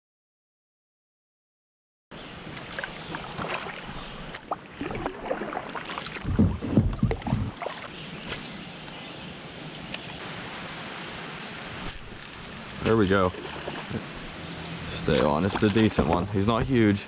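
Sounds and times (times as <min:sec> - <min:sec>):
paddle strokes splashing water: 0:02.4 - 0:08.8, 0:13.1 - 0:14.5, 0:15.1 - 0:16.6.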